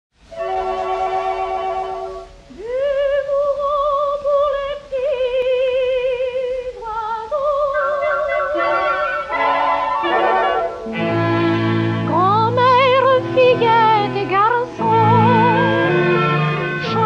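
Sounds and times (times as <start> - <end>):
old music-hall song on record: 0.6 - 17.0
melody with wide vibrato: 7.7 - 17.0
orchestra playing chords: 8.3 - 17.0.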